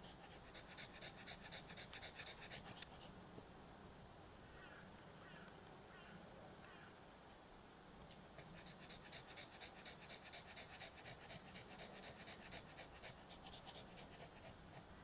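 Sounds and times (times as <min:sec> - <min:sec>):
small dog panting: 0:00.0 - 0:03.2, 0:08.4 - 0:15.0.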